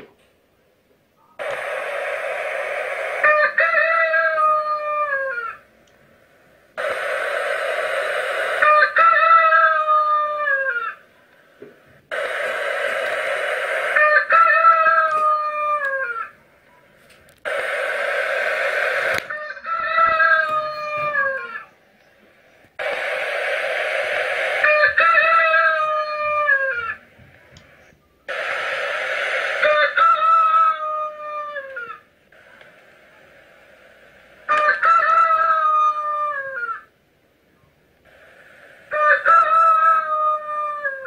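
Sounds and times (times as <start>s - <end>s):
rooster crowing: 2.2s - 5.6s, 6.8s - 11.0s, 12.1s - 16.4s, 17.5s - 21.8s, 23.9s - 27.0s, 29.4s - 32.0s, 34.5s - 36.9s, 38.9s - 41.0s.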